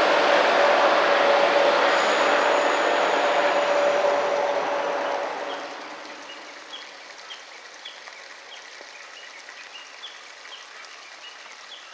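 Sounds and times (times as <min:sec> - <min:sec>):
diesel railcar train: 0:00.0 - 0:06.7
steady outdoor hiss: 0:00.0 - 0:11.9.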